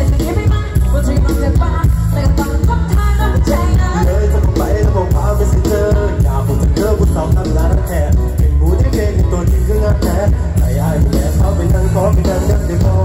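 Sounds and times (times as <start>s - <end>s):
heavy bass and drums: 0.0s - 13.0s
live band music over loudspeakers: 0.0s - 13.0s
person singing: 0.0s - 13.0s.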